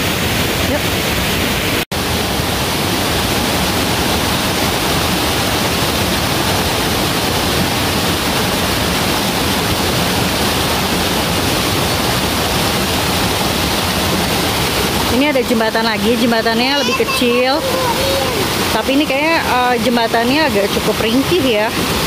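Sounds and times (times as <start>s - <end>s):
mountain stream rushing over rocks: 0.0s - 22.0s.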